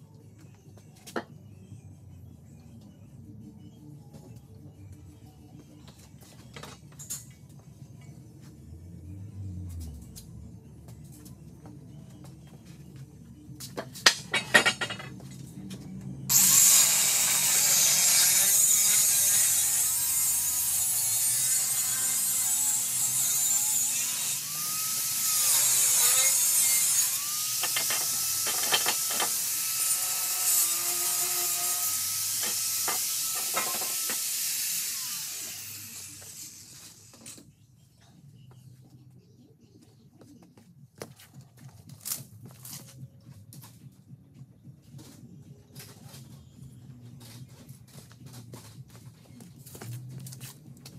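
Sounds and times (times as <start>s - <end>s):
angle grinder cutting steel tube: 16.3s - 37.4s.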